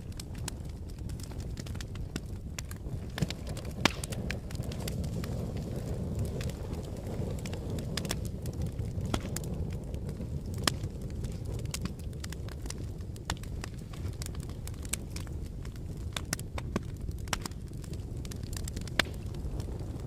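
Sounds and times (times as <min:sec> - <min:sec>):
fire crackling and popping: 0:00.0 - 0:20.0
low rush of flames: 0:00.0 - 0:20.0.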